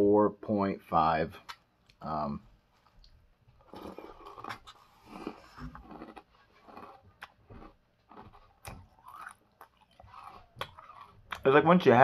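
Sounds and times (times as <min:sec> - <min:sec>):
person chewing crunchy cereal: 0:02.9 - 0:11.5.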